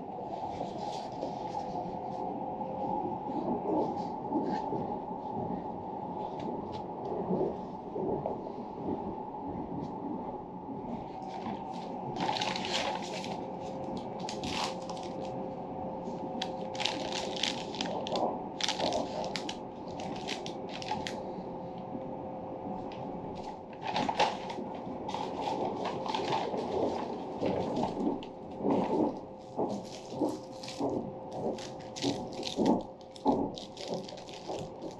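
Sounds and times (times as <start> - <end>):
train running hum: 0.0 - 34.9
paper rustling and crinkling: 11.2 - 15.3, 16.4 - 21.2, 23.4 - 34.9.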